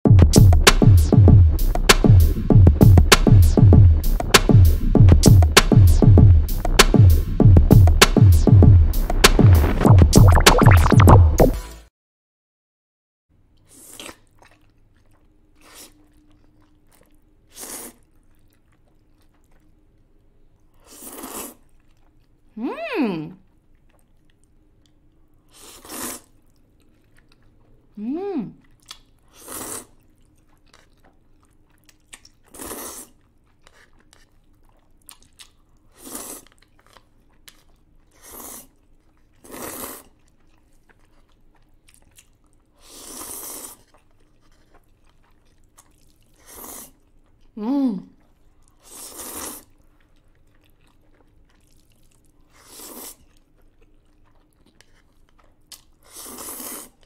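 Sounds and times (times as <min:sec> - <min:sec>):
noodle slurping: 0:05.7 - 0:11.5, 0:17.5 - 0:18.9, 0:20.8 - 0:21.8, 0:25.5 - 0:26.4, 0:29.3 - 0:30.1, 0:32.4 - 0:34.3, 0:35.8 - 0:36.7, 0:38.1 - 0:38.8, 0:39.4 - 0:40.2, 0:42.7 - 0:45.2, 0:46.3 - 0:47.0, 0:48.2 - 0:50.0, 0:52.4 - 0:53.5, 0:56.0 - 0:57.0
person humming: 0:28.0 - 0:28.6.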